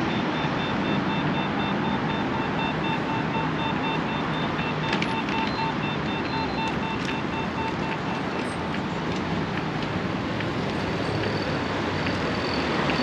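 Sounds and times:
city street traffic: 0.0 - 13.0
fast electronic beeping: 0.1 - 8.6.

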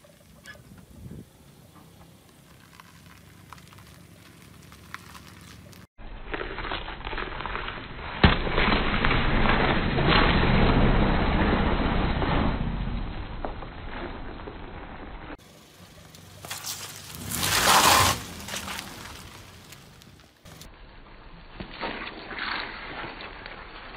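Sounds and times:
car engine and tyre noise: 0.0 - 23.9
watermelon bursting: 6.0 - 14.8.

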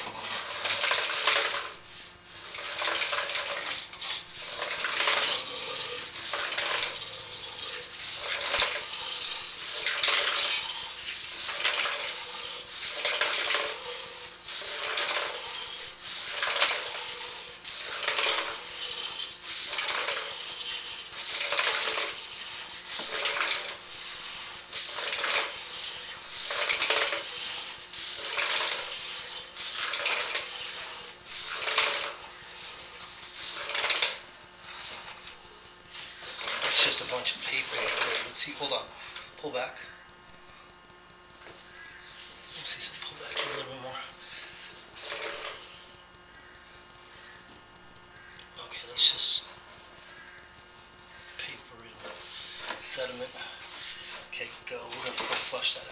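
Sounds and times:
metal cable scraping rattle in drain: 0.0 - 39.9, 41.5 - 45.9, 52.0 - 55.9
faint steady hum: 0.0 - 55.9.

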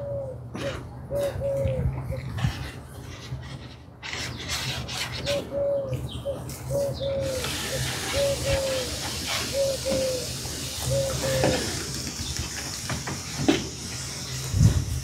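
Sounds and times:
dove cooing: 0.0 - 2.7, 5.2 - 11.9.

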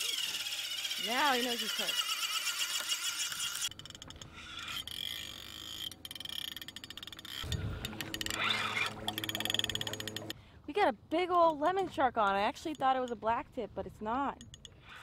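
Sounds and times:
fishing reel drag clicking: 0.0 - 10.4, 14.4 - 15.0.

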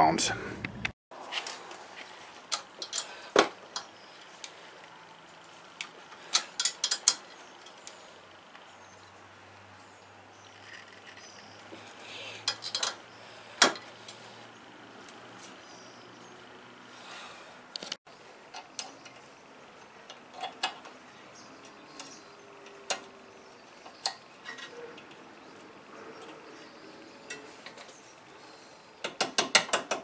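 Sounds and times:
metallic clicks of wrenches: 5.8 - 8.0, 12.4 - 13.0, 17.8 - 21.0, 29.0 - 30.0.

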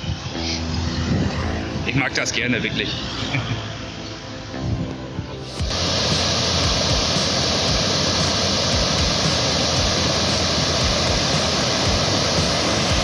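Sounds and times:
river rushing over rocks: 5.6 - 13.0.

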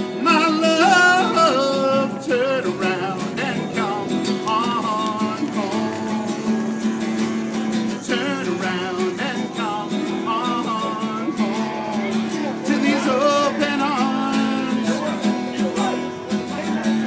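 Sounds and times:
person singing: 0.0 - 16.1
acoustic guitar strumming: 0.0 - 17.0.

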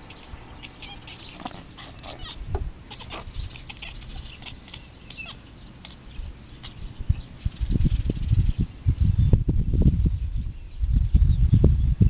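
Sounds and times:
high animal chirps: 0.0 - 7.6.

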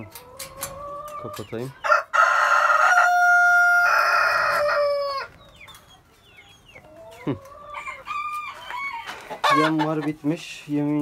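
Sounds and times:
rooster crowing: 1.9 - 5.3, 7.8 - 9.7.

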